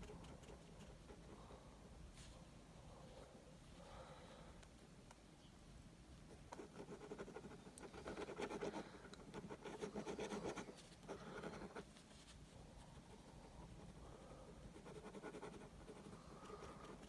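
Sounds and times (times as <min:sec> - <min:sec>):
pen scratching on paper: 0:00.0 - 0:01.4, 0:06.3 - 0:11.9, 0:14.6 - 0:17.0.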